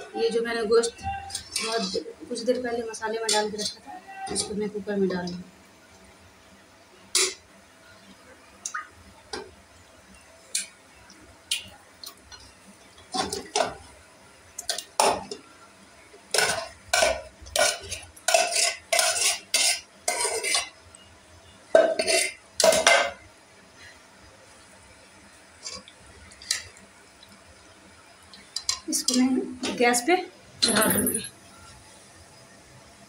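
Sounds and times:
metal spoon scraping metal bowl: 17.6 - 20.7.

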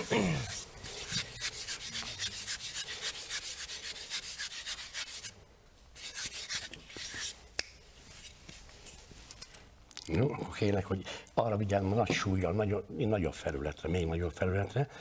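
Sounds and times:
hands scraping on wood: 0.0 - 5.3, 6.0 - 7.4.

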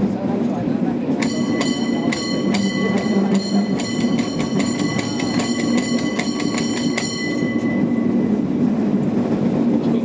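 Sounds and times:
cable car rumble: 0.0 - 10.0
clicks and rattles on track: 0.4 - 8.2.

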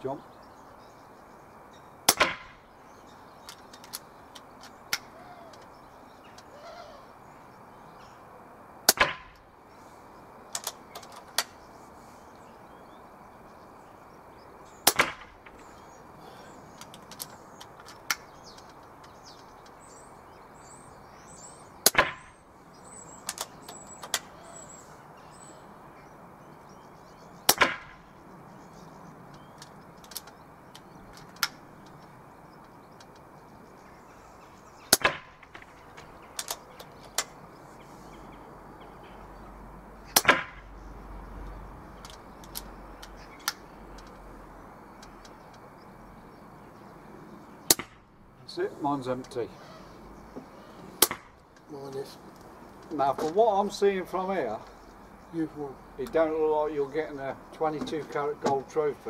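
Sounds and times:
faint bird chirps: 0.0 - 8.4, 9.6 - 35.0, 35.6 - 47.7, 48.4 - 51.0
air rifle shots: 2.0 - 2.7, 8.8 - 9.5, 14.8 - 15.7, 21.8 - 22.4, 27.4 - 28.1, 34.9 - 37.4, 40.1 - 40.7, 47.7 - 48.1, 51.0 - 51.4.

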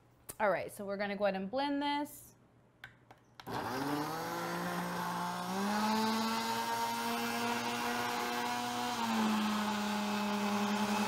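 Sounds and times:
blender motor running: 3.4 - 11.0.

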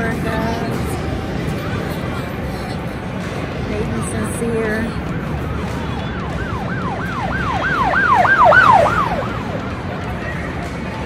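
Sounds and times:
electronic siren yelps: 6.1 - 9.6.

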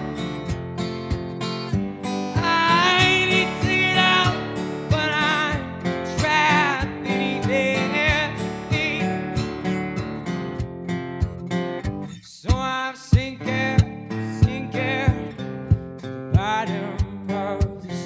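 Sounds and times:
acoustic guitar strumming: 0.0 - 18.0
man singing with vibrato: 2.3 - 9.4, 12.2 - 15.5, 16.3 - 18.0.

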